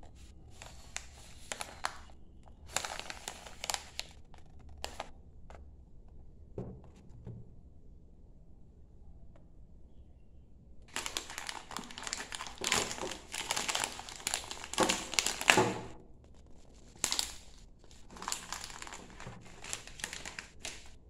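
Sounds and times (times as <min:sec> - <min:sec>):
tea pouch crinkling: 0:00.1 - 0:05.1, 0:10.9 - 0:21.0
sharp crackle of packaging: 0:00.2 - 0:05.1, 0:10.9 - 0:21.0.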